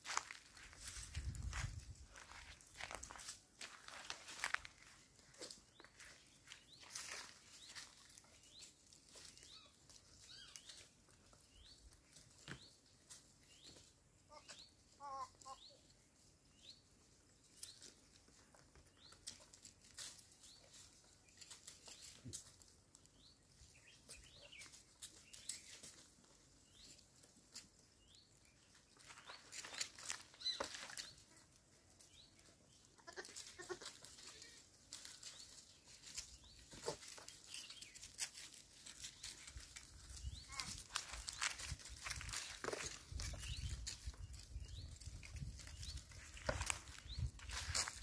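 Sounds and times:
goat hooves clicking and scraping: 0.0 - 48.0
goat bleat: 33.0 - 34.1.

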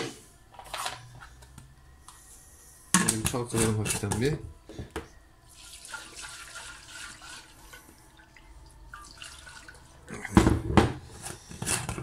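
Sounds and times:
liquid sloshing in glass jar: 8.2 - 10.3.

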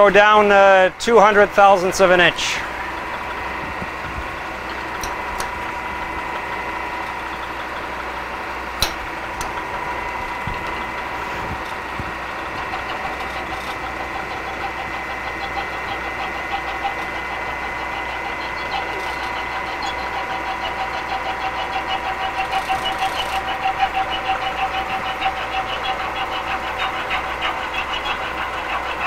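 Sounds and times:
milling machine humming with whine: 0.0 - 29.0
sharp click: 8.8 - 9.5.

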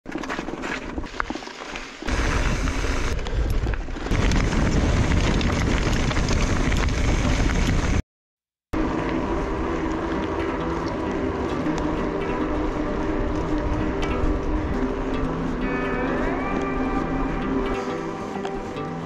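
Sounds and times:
bike tyres crunching over stones: 0.1 - 8.0
wind rumble on microphone: 2.1 - 8.0, 8.8 - 18.0.

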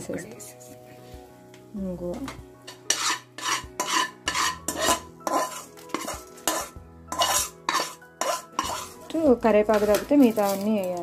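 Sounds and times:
metal spoon scraping seeds in a pan: 2.7 - 11.0.

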